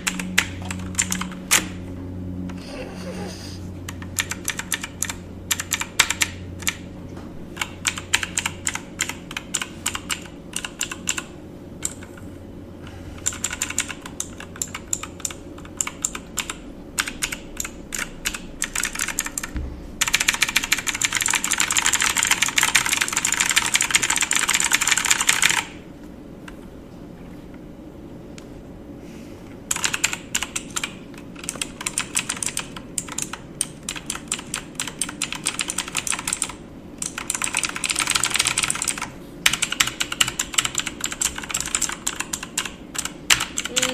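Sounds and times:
keyboard typing: 0.0 - 1.8, 3.9 - 6.9, 7.6 - 12.3, 13.2 - 25.8, 29.7 - 43.9
faint steady hum: 0.0 - 43.9.

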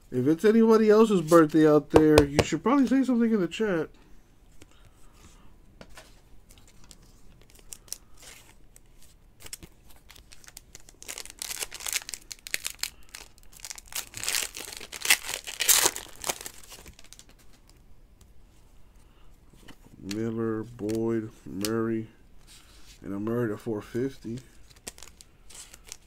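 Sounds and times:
foil wrapper crinkling and tearing: 9.4 - 17.6, 24.6 - 26.0.

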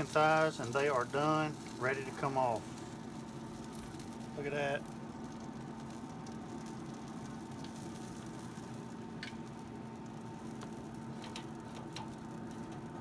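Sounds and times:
food sizzling on grill: 0.0 - 13.0
grill fan hum: 0.0 - 13.0.

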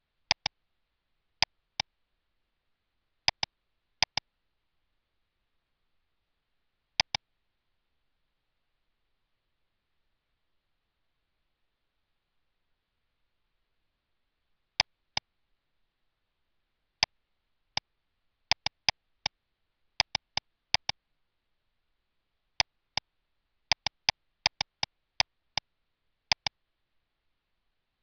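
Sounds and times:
computer mouse clicks: 0.3 - 0.6, 3.3 - 4.3, 7.0 - 7.2, 18.5 - 19.4, 20.0 - 21.0, 23.7 - 24.9, 26.3 - 26.6.

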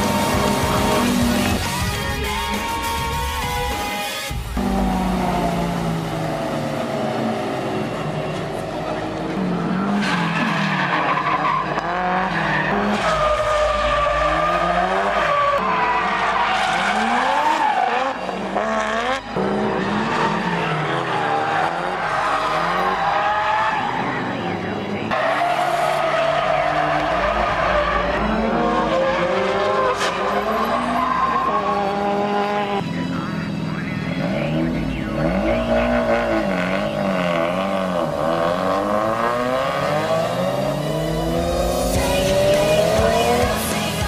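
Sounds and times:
car engines revving: 0.0 - 44.0.

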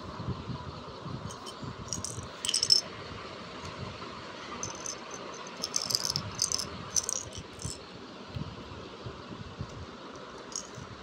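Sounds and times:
plastic pieces rattling and clicking: 1.3 - 2.8, 4.6 - 7.8, 10.5 - 10.8.

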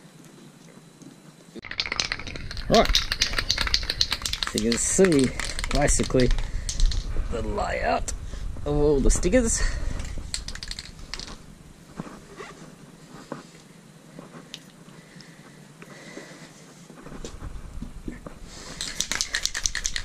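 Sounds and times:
low rumble: 2.1 - 11.9.

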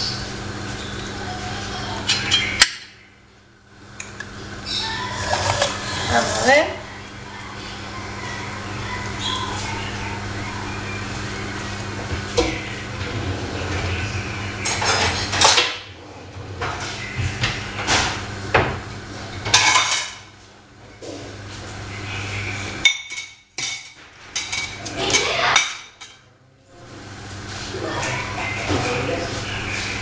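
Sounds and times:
steady low hum: 0.0 - 30.0
pots pans and cutlery clattering: 14.6 - 15.9, 19.4 - 20.4, 22.8 - 26.3.

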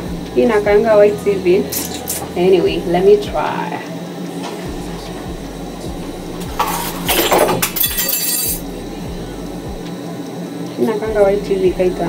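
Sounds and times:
metal spoon clinking on dishes: 6.6 - 8.6.

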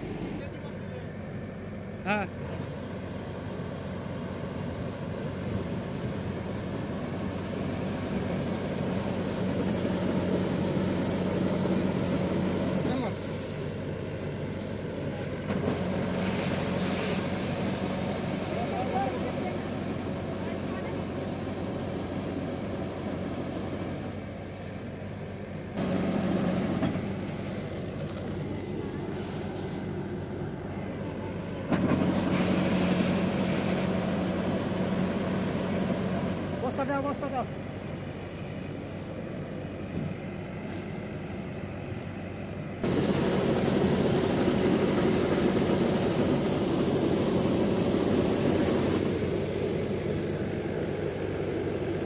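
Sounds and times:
combine harvester engine running: 0.0 - 52.0.

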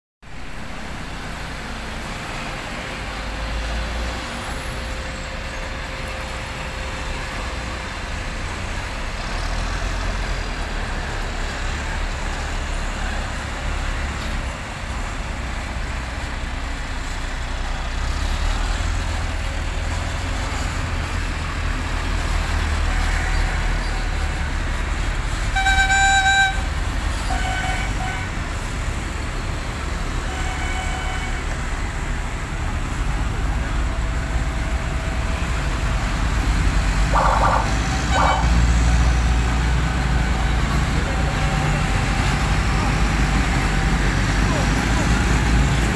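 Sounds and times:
military vehicle engines rumbling: 0.2 - 45.9
vehicle horn: 25.5 - 28.4, 30.2 - 31.6, 37.1 - 38.6.

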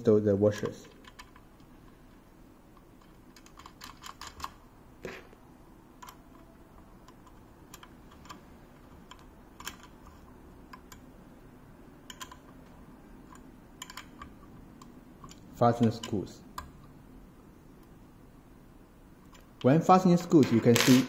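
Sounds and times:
small metal parts clicking: 0.5 - 4.6, 6.0 - 11.0, 12.0 - 16.8.

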